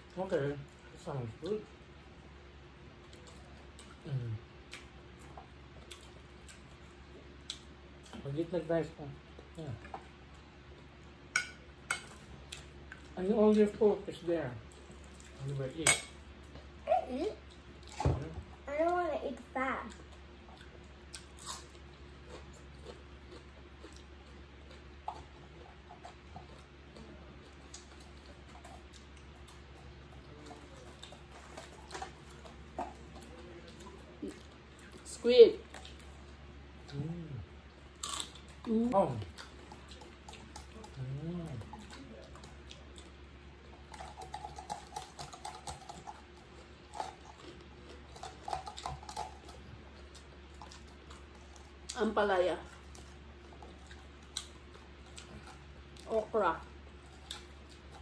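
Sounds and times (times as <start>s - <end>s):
steady low hum: 0.0s - 58.0s
chewing and lip smacks: 4.7s - 8.2s, 19.9s - 35.1s, 35.7s - 52.0s, 52.7s - 56.1s, 56.9s - 58.0s.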